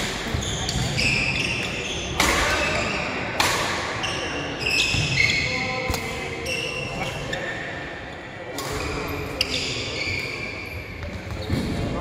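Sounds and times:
shoe squeaks on court floor: 0.3s - 3.2s, 4.0s - 7.7s, 8.5s - 11.8s
racket striking shuttlecock: 2.2s - 2.6s, 3.4s - 3.9s.

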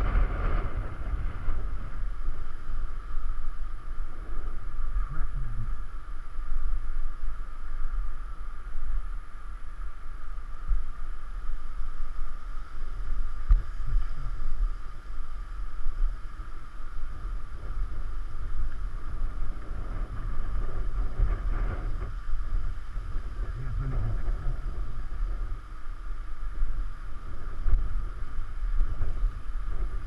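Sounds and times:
wind buffeting microphone: 0.0s - 30.0s.

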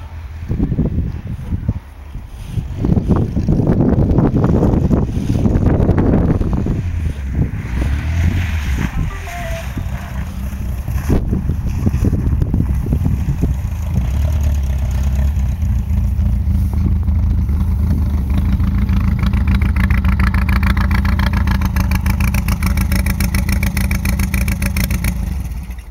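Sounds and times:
car engine idling with clatter: 8.9s - 25.9s.

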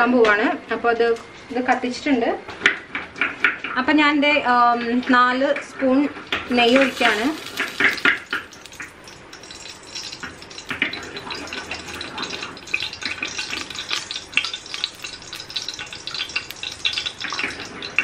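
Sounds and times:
ghee sizzling and crackling: 6.3s - 18.0s.

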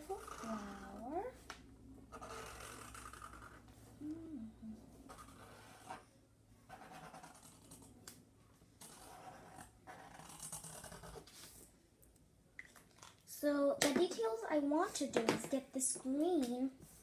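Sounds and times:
marker drawing on paper: 2.1s - 3.8s, 5.1s - 6.0s, 6.7s - 7.9s, 8.8s - 11.6s.

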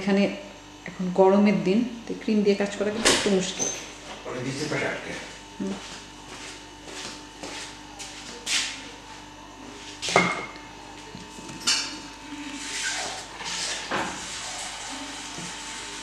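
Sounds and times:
scraping and rustling: 11.2s - 16.0s.

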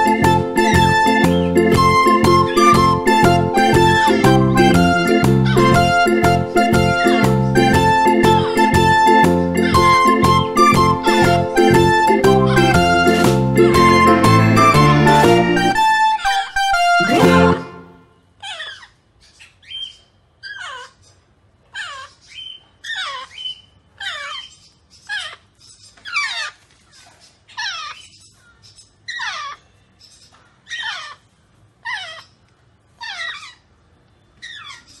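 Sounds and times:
parrot chick calling: 0.0s - 26.6s, 28.9s - 29.7s, 30.6s - 32.4s, 33.0s - 33.8s, 34.4s - 35.0s.

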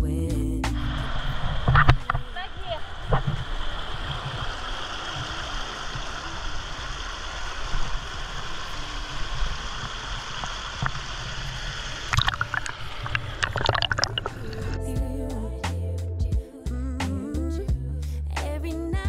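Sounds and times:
river water rushing: 0.9s - 14.8s.

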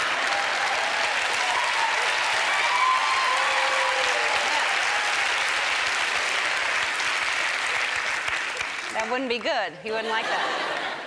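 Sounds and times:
audience clapping: 0.0s - 9.7s, 10.4s - 11.0s
people laughing: 9.9s - 11.0s.

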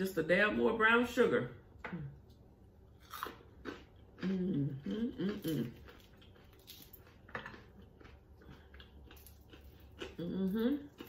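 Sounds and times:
woman chewing and lip-smacking: 3.0s - 11.0s
woman humming mmm: 4.2s - 5.8s, 10.2s - 11.0s.

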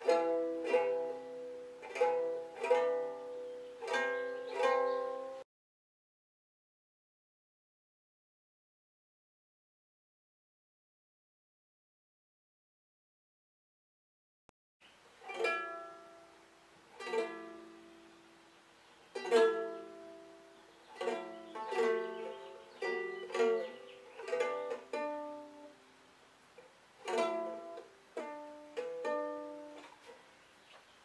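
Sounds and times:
ukulele strumming: 0.0s - 5.4s, 15.2s - 18.5s, 19.1s - 30.2s.

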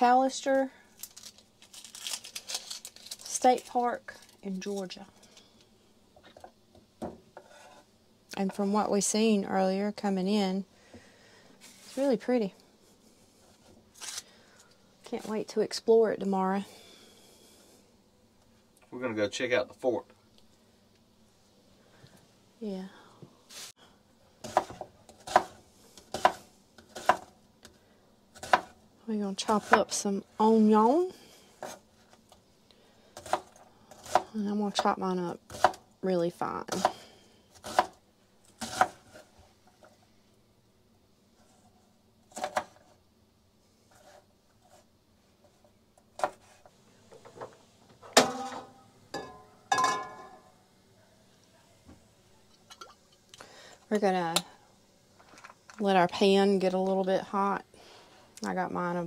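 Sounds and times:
knife slicing onion on wooden board: 24.4s - 27.3s, 28.4s - 28.8s, 33.2s - 34.3s, 35.5s - 35.8s, 36.7s - 37.0s, 37.6s - 38.0s, 38.6s - 39.3s.

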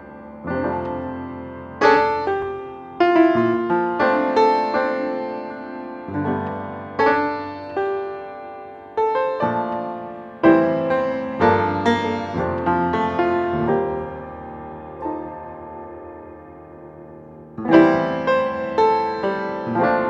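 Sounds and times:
piano music: 0.0s - 20.0s.

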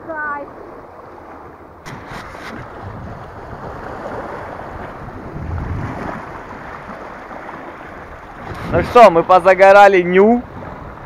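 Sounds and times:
small waves washing over rocks: 0.3s - 9.1s
wind on microphone: 1.8s - 9.4s, 10.3s - 11.0s.

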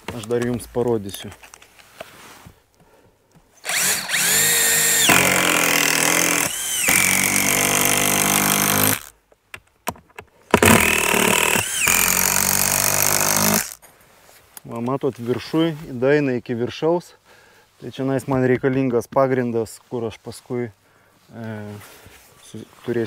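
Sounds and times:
drill motor whine: 3.6s - 9.1s, 10.6s - 13.8s.

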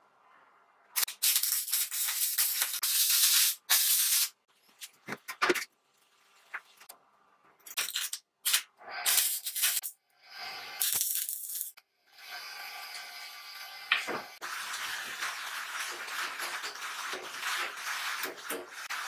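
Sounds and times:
electric arc welding sizzle: 1.0s - 4.4s, 7.8s - 9.9s, 10.6s - 19.0s.

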